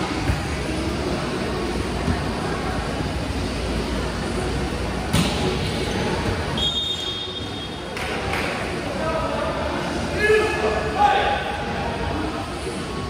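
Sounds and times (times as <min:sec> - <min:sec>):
sports hall noise: 0:00.0 - 0:13.0
referee's whistle: 0:06.6 - 0:07.7.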